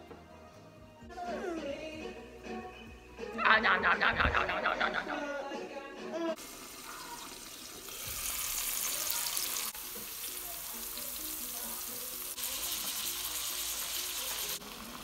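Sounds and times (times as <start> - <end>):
food sizzling in a pan: 6.4 - 15.0.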